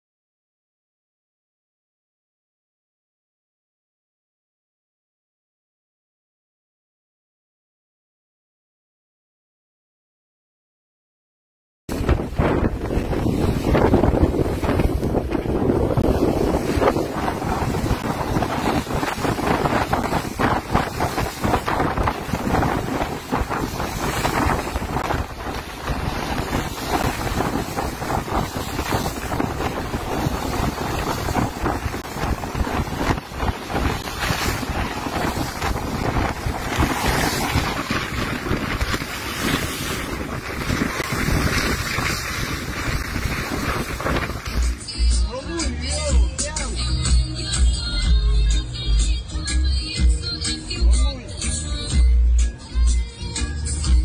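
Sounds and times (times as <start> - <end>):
sea water washing: 11.9 - 44.9
wind buffeting microphone: 11.9 - 44.9.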